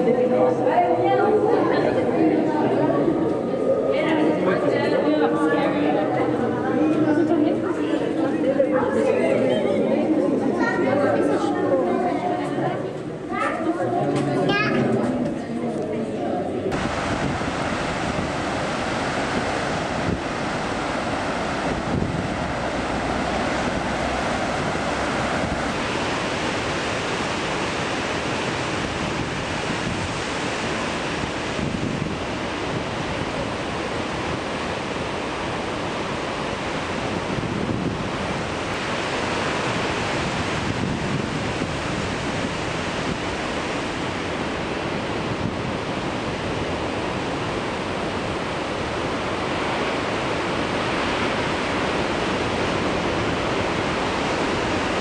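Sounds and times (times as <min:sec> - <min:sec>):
surf breaking on rocks: 0:16.7 - 0:55.0
wind buffeting microphone: 0:16.7 - 0:55.0.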